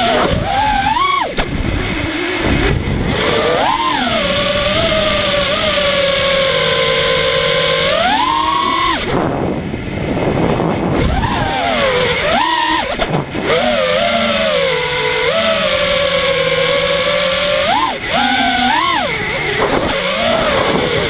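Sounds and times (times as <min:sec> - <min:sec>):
rushing air: 0:00.0 - 0:07.0, 0:08.1 - 0:13.6
drone motors whining: 0:00.0 - 0:21.0.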